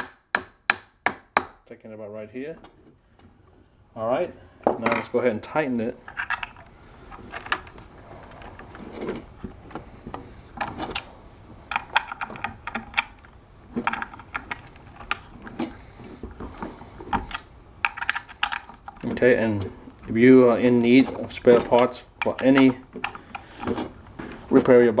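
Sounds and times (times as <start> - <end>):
small metal parts handled: 6.0 - 9.3, 17.1 - 19.2.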